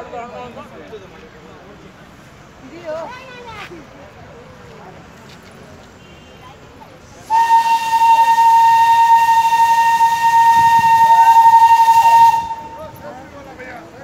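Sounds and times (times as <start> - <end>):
steam hissing: 7.0 - 13.0
steam locomotive whistle: 7.2 - 13.0.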